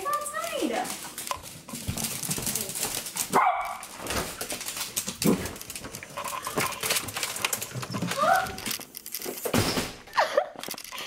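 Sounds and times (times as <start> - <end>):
dog barking: 3.3 - 3.9.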